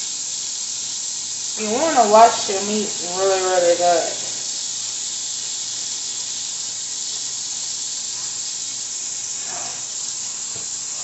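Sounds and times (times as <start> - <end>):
tap running into a sink: 9.4 - 11.0.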